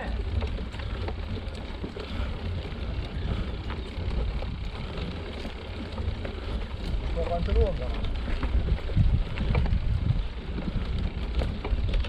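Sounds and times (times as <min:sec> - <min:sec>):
bike clicks and rattles: 0:00.0 - 0:12.0
tyres on dirt: 0:00.0 - 0:12.0
wind buffeting microphone: 0:00.0 - 0:12.0.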